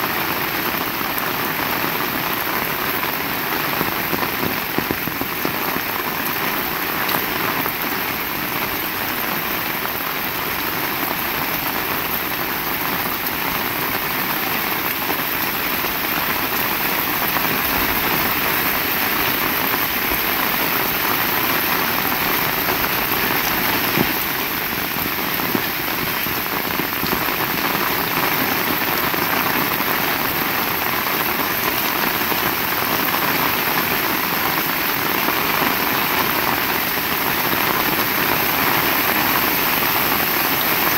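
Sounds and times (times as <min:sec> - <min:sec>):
heavy rain: 0:00.0 - 0:40.9.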